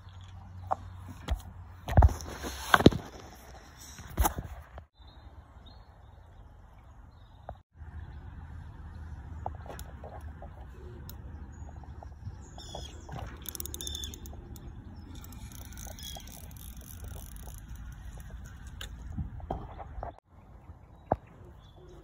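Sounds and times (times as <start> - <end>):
small birds chirping: 4.9 - 22.0
fishing reel rapid clicks: 13.4 - 18.6.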